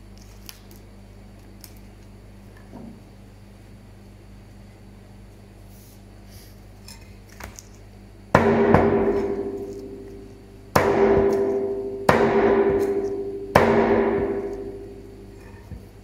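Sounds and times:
cleaver chopping ribs: 0:08.4 - 0:15.8.

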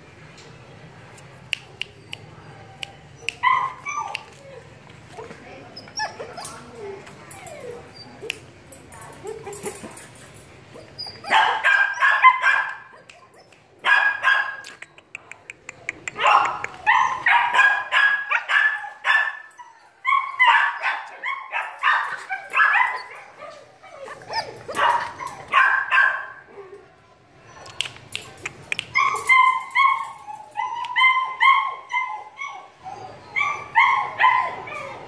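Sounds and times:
puppy barking and yipping: 0:10.8 - 0:14.6, 0:16.2 - 0:26.3.

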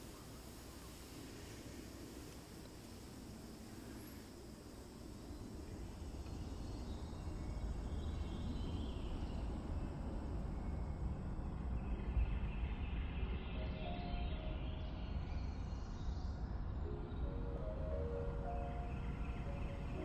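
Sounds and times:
soft held film score notes: 0:09.1 - 0:20.0.

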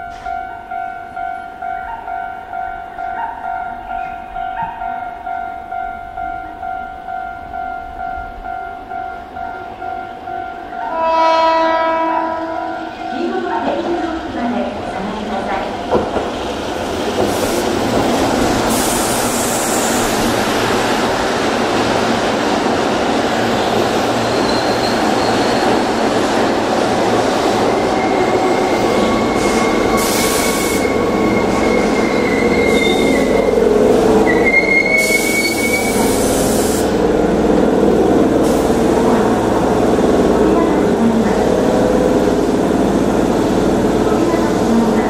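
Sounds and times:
train wheels rolling: 0:13.2 - 0:45.0
high-pitched wheel squeals: 0:24.3 - 0:25.9, 0:27.6 - 0:33.6, 0:34.2 - 0:36.2.

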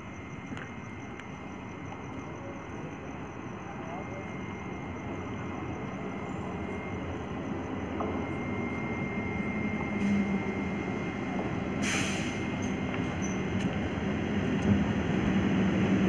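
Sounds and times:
electric train rumbling: 0:00.0 - 0:16.0
short hiss: 0:11.8 - 0:12.5.

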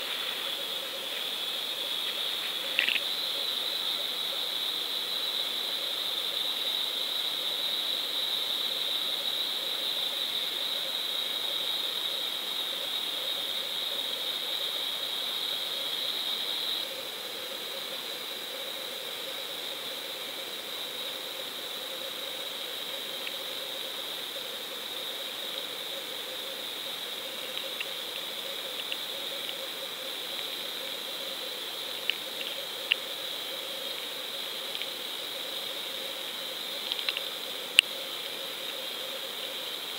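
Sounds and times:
steady hiss: 0:00.0 - 0:39.9
faint sharp ticks: 0:02.6 - 0:03.1, 0:27.5 - 0:29.6, 0:32.0 - 0:33.1, 0:34.7 - 0:35.0, 0:36.8 - 0:38.8.

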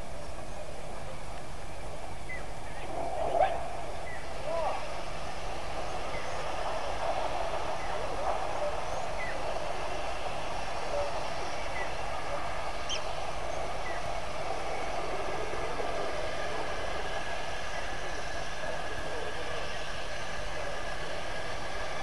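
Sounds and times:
shallow river water rushing: 0:00.0 - 0:22.0
faint bird chirps: 0:12.8 - 0:15.0.

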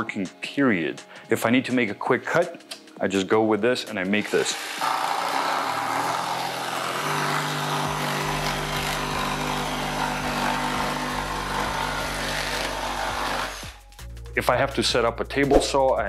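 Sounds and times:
jigsaw cutting wood: 0:04.2 - 0:13.8.

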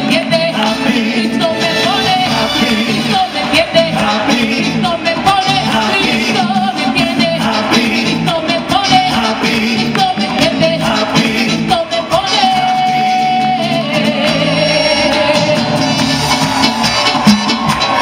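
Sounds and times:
instrumental backing music: 0:00.0 - 0:18.0
woman singing into microphone: 0:11.6 - 0:15.8.

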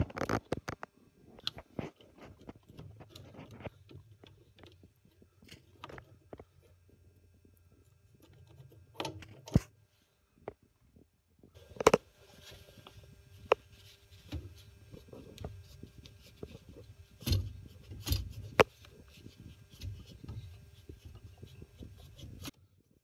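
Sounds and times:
cloth rubbing on metal valve: 0:11.6 - 0:22.5
sharp clicks and knocks: 0:12.8 - 0:22.6.

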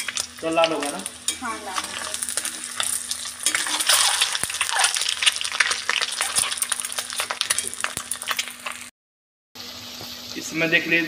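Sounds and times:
eggs sizzling in hot oil: 0:00.0 - 0:08.9, 0:09.6 - 0:11.0
metal spatula scraping a pan: 0:01.2 - 0:07.9.

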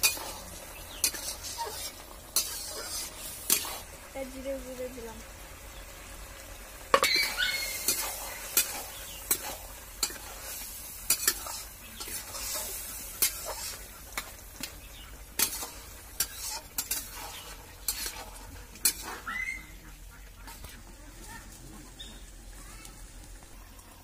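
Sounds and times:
metal spatula scraping wok: 0:00.0 - 0:04.0, 0:06.9 - 0:20.8
food sizzling: 0:00.0 - 0:24.0.

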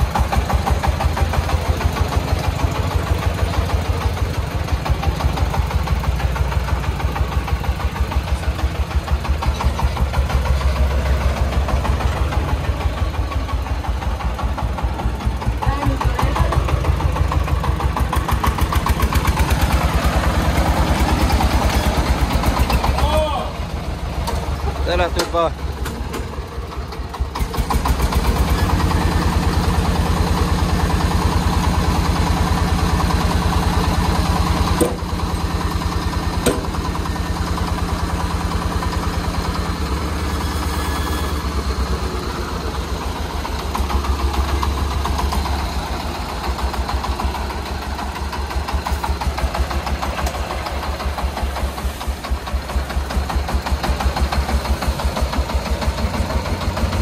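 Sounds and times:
diesel engine chugging: 0:00.0 - 0:57.0
sharp knocks: 0:34.8 - 0:35.1, 0:36.4 - 0:36.8.

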